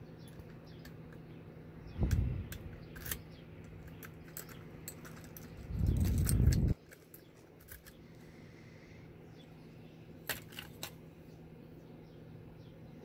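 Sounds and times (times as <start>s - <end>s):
low handling rumble: 1.8s - 3.0s, 5.2s - 6.8s
key clicking and scraping in lock: 2.1s - 8.0s.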